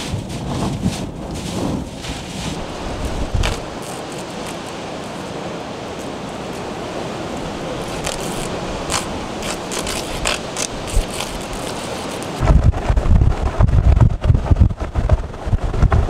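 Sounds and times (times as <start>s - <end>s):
wind and blowing precipitation: 0.0s - 16.0s.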